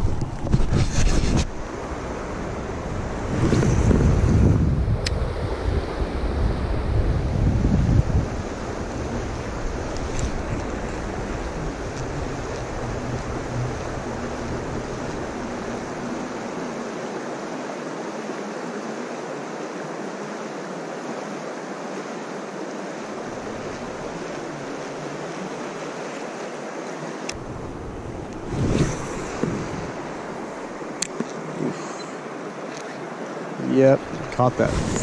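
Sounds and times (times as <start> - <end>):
wind rumble on microphone: 0.0 - 17.0, 27.3 - 31.8, 34.0 - 35.0
river rushing over rocks: 8.3 - 35.0.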